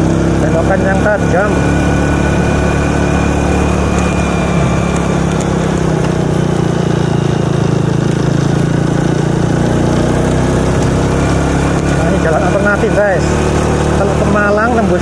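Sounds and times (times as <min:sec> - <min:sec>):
motorcycle engine running: 0:00.0 - 0:15.0
road and air noise: 0:00.0 - 0:15.0.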